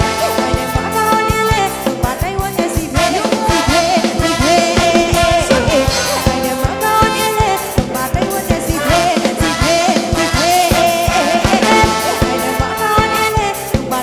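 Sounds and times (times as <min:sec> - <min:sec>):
person singing with band: 0:02.5 - 0:13.8
steady drum beat: 0:10.4 - 0:13.2.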